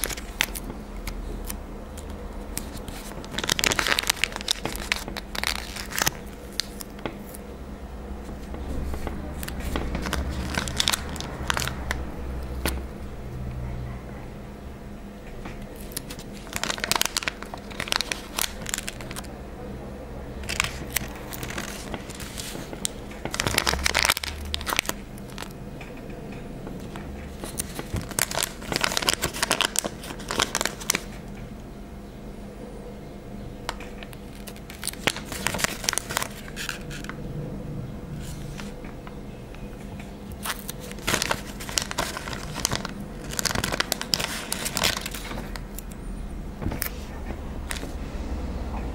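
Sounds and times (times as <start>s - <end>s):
paper stickers crinkling: 0.0s - 7.4s, 8.2s - 12.9s, 15.6s - 19.3s, 20.4s - 25.6s, 26.8s - 31.3s, 33.7s - 37.2s, 38.2s - 39.2s, 40.0s - 46.0s, 46.6s - 48.0s.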